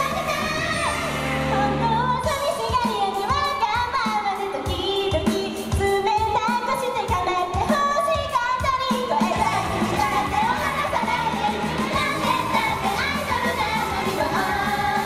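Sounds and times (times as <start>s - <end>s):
amplified backing track: 0.0s - 15.0s
girls singing pop: 0.0s - 15.0s
steady drum beat: 2.3s - 15.0s.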